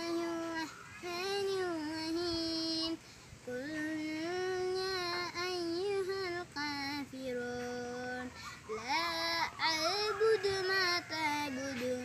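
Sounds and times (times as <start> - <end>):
child chanting melodically: 0.0 - 12.0.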